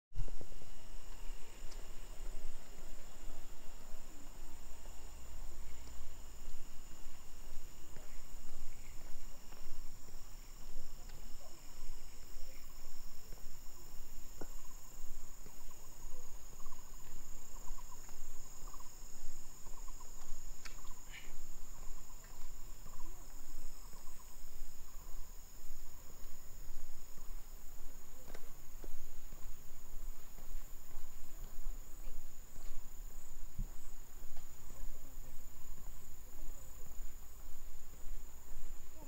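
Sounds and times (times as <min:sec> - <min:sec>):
insects buzzing: 0:00.2 - 0:39.0.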